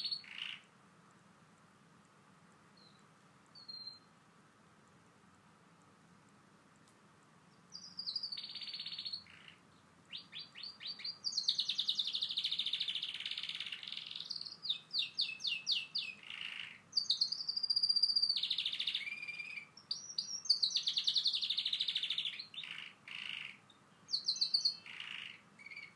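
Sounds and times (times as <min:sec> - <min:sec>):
canary singing trills and chirps: 0:00.0 - 0:00.7, 0:02.8 - 0:04.1, 0:07.5 - 0:25.9.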